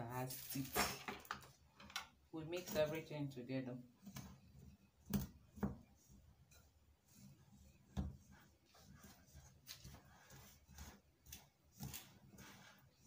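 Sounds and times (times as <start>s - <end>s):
whisk scraping in bowl: 3.9s - 13.0s.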